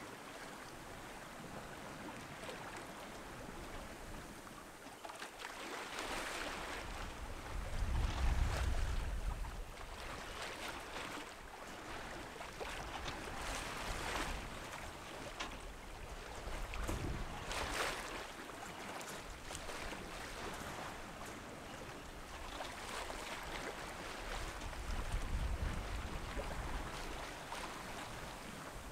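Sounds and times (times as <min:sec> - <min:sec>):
water splashing along a hull: 0:00.0 - 0:28.9.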